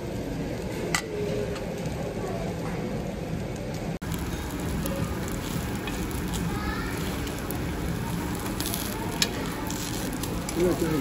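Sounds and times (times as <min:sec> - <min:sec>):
meat sizzling on a griddle: 0:04.0 - 0:11.0.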